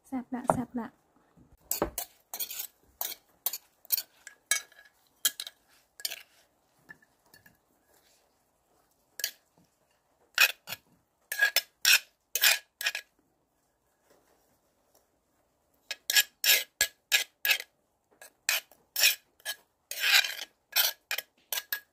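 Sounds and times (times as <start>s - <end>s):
spoon scraping a mortar: 1.6s - 8.2s, 10.3s - 13.1s, 15.9s - 21.9s.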